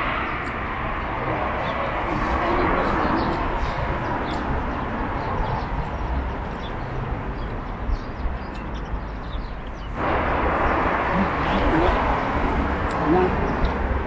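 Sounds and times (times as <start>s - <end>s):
traffic rumble: 0.0s - 14.0s
rush of noise: 9.8s - 14.0s.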